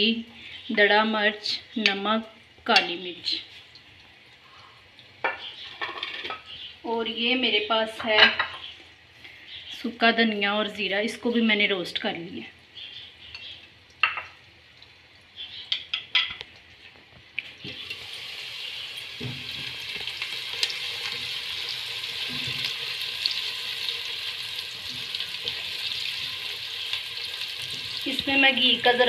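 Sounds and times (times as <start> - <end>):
onions sizzling in hot fat: 16.7 - 29.0.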